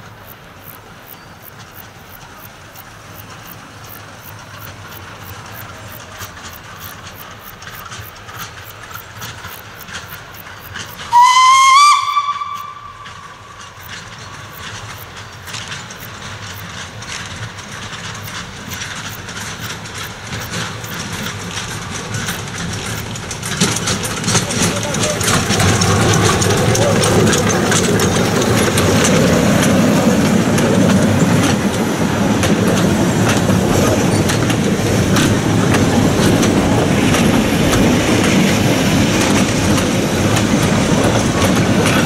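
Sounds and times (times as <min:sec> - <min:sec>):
steam train running: 0:00.0 - 0:42.0
steam whistle blast: 0:11.1 - 0:13.3.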